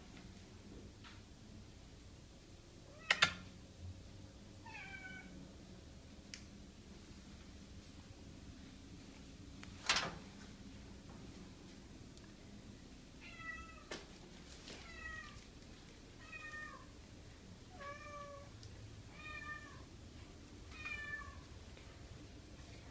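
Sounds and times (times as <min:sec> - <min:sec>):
cat meowing: 0:04.6 - 0:05.3, 0:13.2 - 0:13.9, 0:16.2 - 0:16.9, 0:17.8 - 0:18.5, 0:19.1 - 0:19.9, 0:20.7 - 0:21.4.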